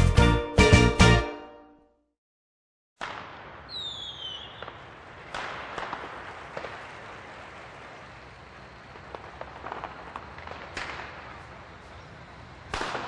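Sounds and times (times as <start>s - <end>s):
falling whistle: 3.7s - 4.8s.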